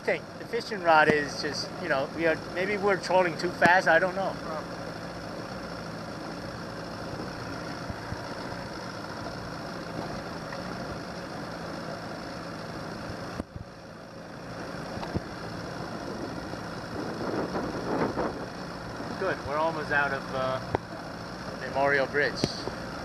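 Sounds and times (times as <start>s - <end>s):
outboard motor running: 0.0s - 23.0s
wind noise: 15.9s - 19.2s.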